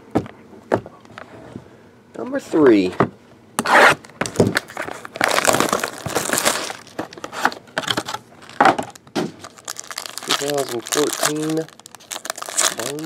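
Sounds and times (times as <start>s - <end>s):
plastic wrap crinkling: 4.3s - 13.0s.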